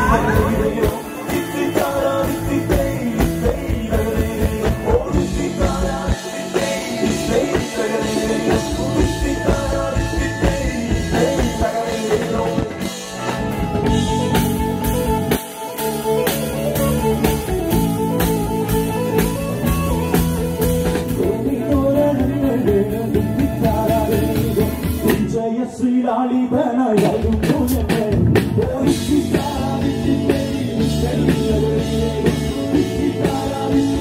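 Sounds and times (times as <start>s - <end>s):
person singing: 0.0s - 13.5s, 20.9s - 34.0s
live rock band playing: 0.0s - 25.5s, 26.8s - 34.0s.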